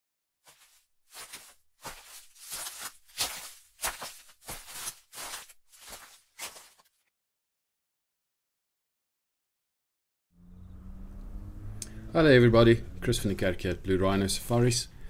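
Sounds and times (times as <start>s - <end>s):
footsteps scuffing: 0.5s - 7.0s.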